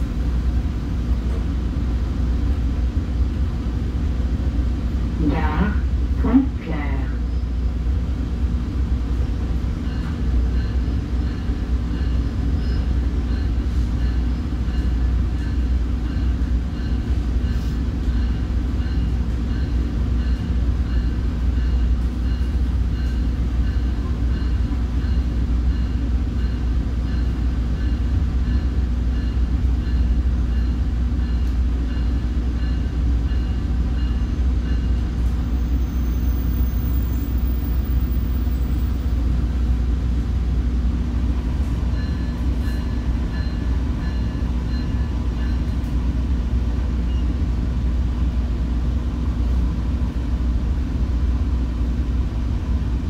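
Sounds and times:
train coach low rumble: 0:00.0 - 0:53.0.

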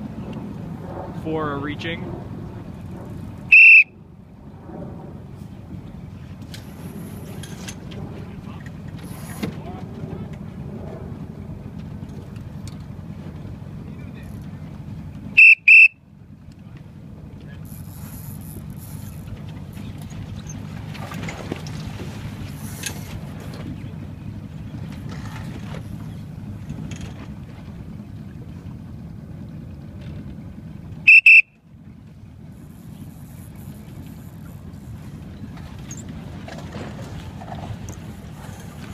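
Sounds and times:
outboard engine running: 0:00.0 - 0:38.9
wind and water noise: 0:00.0 - 0:38.9
high-pitched double horn blast: 0:31.1 - 0:31.5.

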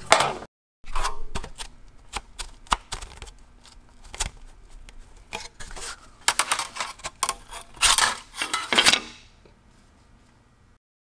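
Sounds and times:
metal saw clinking and scraping: 0:06.4 - 0:09.1.

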